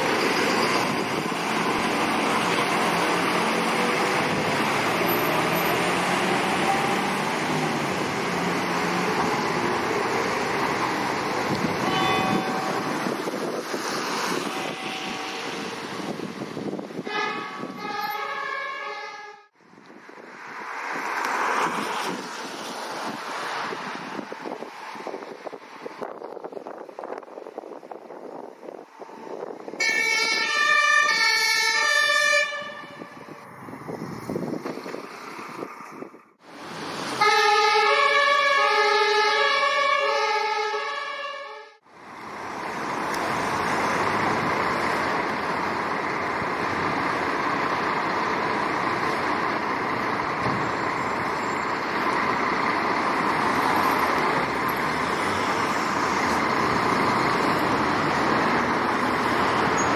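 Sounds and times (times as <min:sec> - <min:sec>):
fire engine engines running: 0:00.0 - 0:59.9
two-tone fire engine siren: 0:11.3 - 0:13.2, 0:14.4 - 0:15.8, 0:17.0 - 0:19.5, 0:29.8 - 0:33.4, 0:37.2 - 0:41.8.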